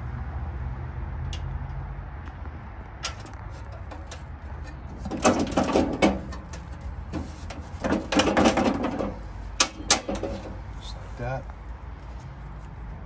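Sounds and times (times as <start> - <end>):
metal steps rattling and clinking: 3.0 - 10.6.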